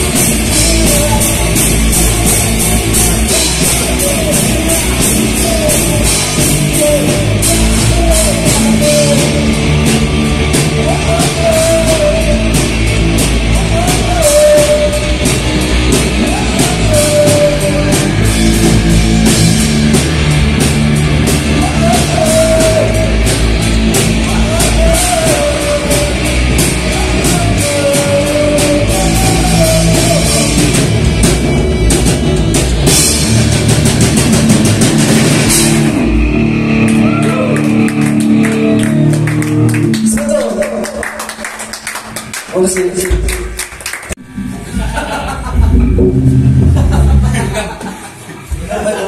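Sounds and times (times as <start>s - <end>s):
person singing: 0.0s - 18.9s, 21.3s - 31.0s
drum kit with crashing cymbals: 0.0s - 38.2s, 44.3s - 49.0s
distorted guitars: 0.0s - 41.3s, 44.2s - 49.0s
bass guitar: 0.0s - 42.3s, 43.1s - 49.0s.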